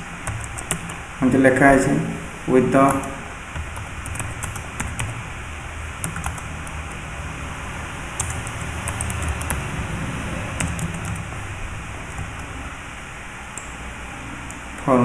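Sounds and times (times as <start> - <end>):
keyboard typing: 0.0 - 1.1, 2.8 - 5.3, 6.0 - 7.2, 8.0 - 12.6
low background hum: 0.0 - 15.0.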